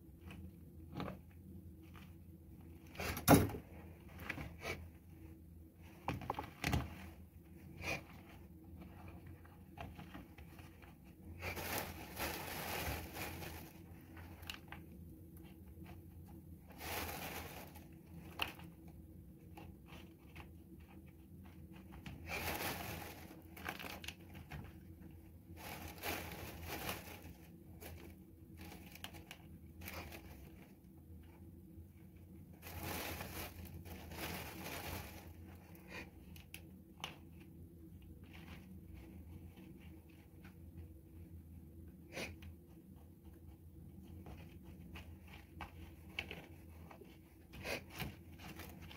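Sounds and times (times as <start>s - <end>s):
hand scooping potting mix: 7.0s - 48.9s
plastic bag crinkling: 10.8s - 14.8s, 16.7s - 18.8s, 22.2s - 24.7s, 25.5s - 30.7s, 32.5s - 36.5s.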